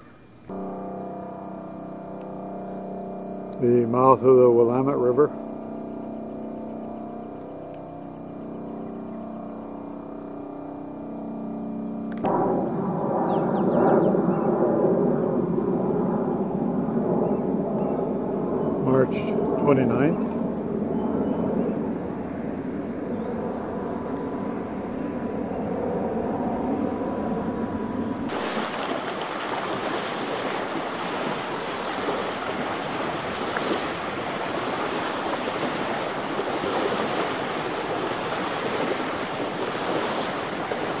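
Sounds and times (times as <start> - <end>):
faint held tone: 0.0 - 26.1
steady low hum: 0.0 - 41.0
wind on microphone: 12.2 - 41.0
small waves lapping on sand: 28.3 - 41.0.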